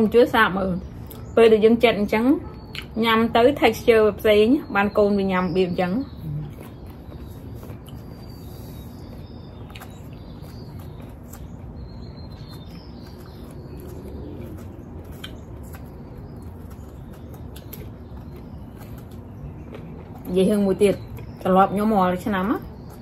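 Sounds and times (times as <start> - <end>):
low background rumble: 0.0 - 23.0
faint bird chirps: 0.8 - 23.0.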